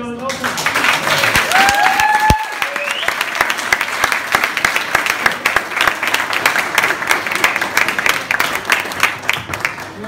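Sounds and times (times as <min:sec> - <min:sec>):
audience applauding: 0:00.3 - 0:10.0.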